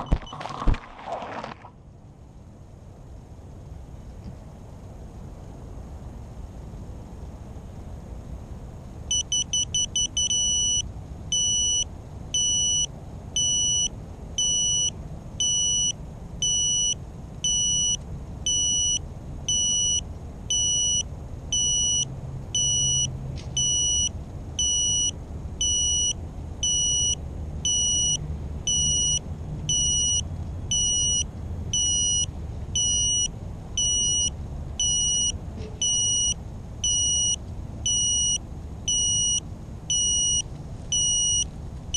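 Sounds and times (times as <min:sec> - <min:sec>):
high electronic beeps: 0:22.6 - 0:31.2, 0:31.8 - 0:41.5.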